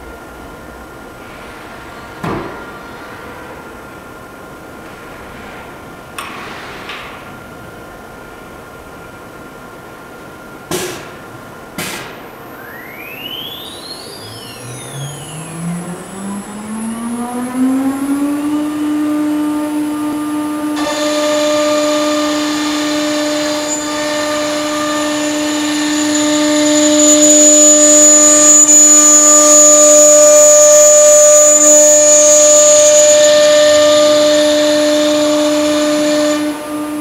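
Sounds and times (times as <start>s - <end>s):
router spindle whine: 12.5s - 37.0s
bit cutting wood hissing: 20.9s - 36.9s.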